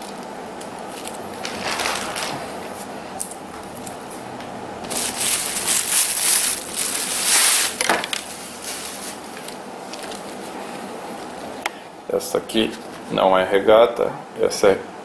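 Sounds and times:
plastic bag crinkling: 0.0 - 4.1, 4.8 - 10.6
fabric handling: 4.8 - 10.6.

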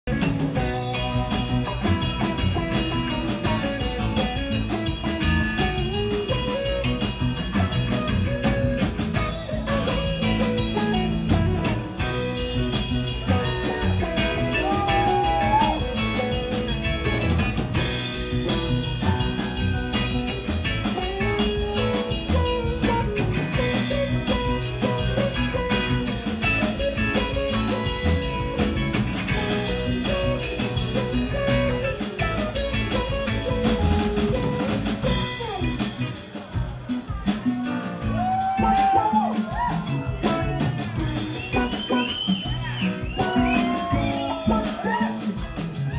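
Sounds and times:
live rock band playing: 0.0 - 45.9.

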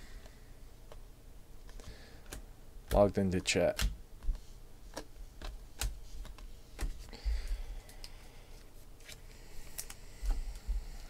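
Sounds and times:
cards sliding rustle: 4.2 - 7.1.

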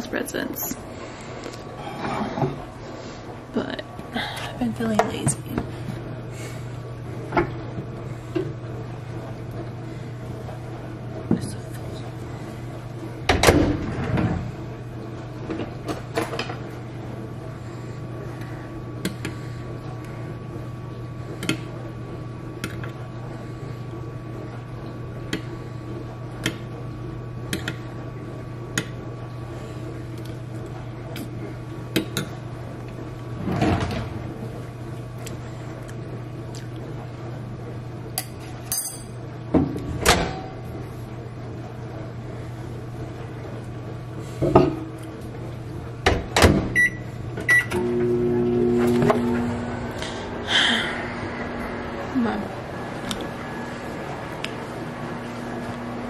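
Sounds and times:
dishwasher humming: 0.0 - 56.0.

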